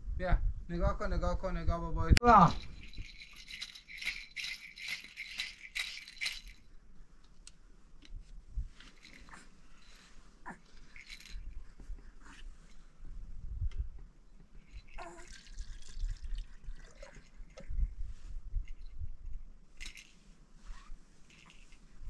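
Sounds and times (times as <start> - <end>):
baby rattle shaking: 2.4 - 6.8, 8.8 - 12.4, 14.6 - 18.0, 18.6 - 19.1, 19.7 - 20.2, 20.8 - 22.0.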